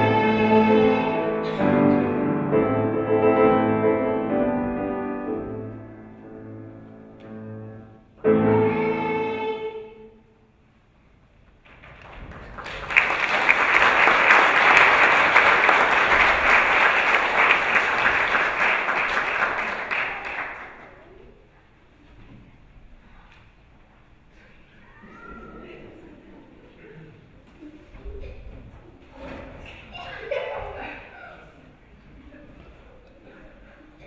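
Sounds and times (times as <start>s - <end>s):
audience applause: 11.7s - 21.1s.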